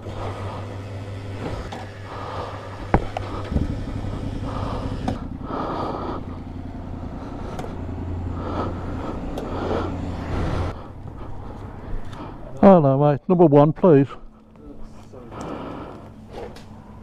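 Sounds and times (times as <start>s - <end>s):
low mechanical hum: 0.0s - 12.6s.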